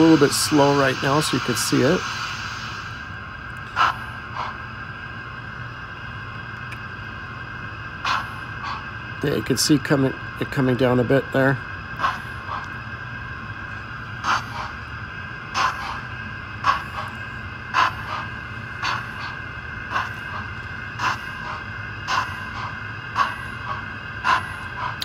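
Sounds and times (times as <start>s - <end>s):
model steam locomotive chuffs: 0.0s - 25.0s
steady low hum: 0.0s - 25.0s.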